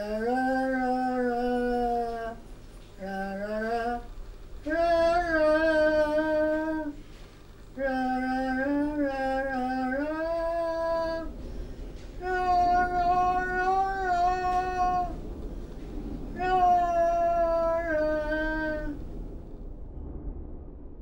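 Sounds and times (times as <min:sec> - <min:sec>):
person humming a slow melody: 0:00.0 - 0:07.0, 0:07.7 - 0:11.4, 0:12.1 - 0:15.2, 0:16.2 - 0:19.0.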